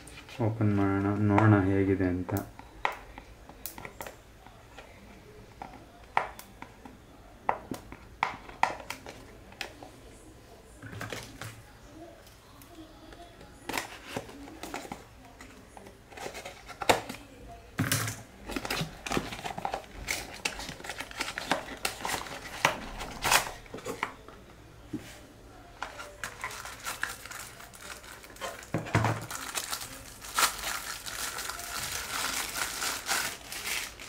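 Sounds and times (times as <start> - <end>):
wrapping crinkling and tearing: 18.5 - 23.6, 25.9 - 34.0.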